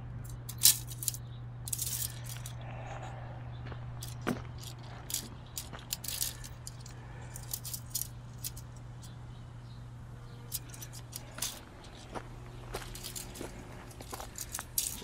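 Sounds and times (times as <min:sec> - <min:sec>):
steady low hum: 0:00.0 - 0:15.0
clicks and rattles on stony dirt: 0:00.2 - 0:09.2, 0:10.3 - 0:15.0.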